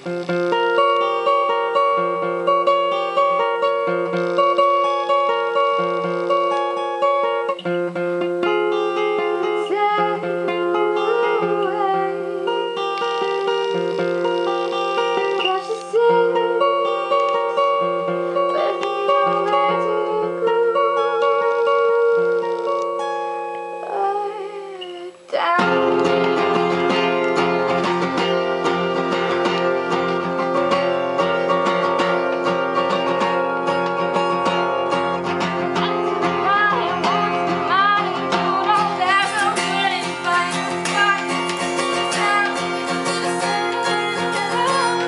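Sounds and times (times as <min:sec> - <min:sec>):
acoustic guitar strummed and picked: 0:00.0 - 0:45.0
woman singing: 0:08.4 - 0:14.2, 0:15.0 - 0:27.8, 0:35.0 - 0:45.0.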